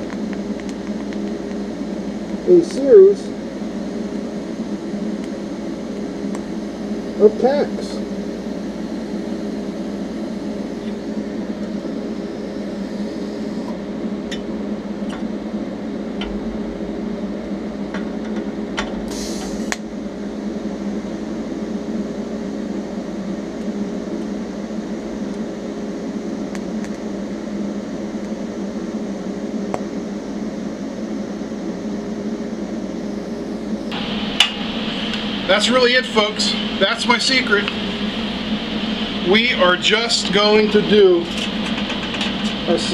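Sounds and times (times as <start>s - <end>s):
short hiss: 19.1s - 19.8s
welding arc buzzing: 33.8s - 42.9s.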